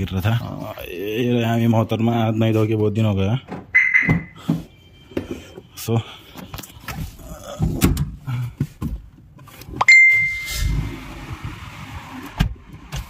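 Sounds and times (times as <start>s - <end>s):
car ding chime: 3.8s - 5.5s, 9.8s - 10.7s
car engine starting: 10.4s - 13.0s.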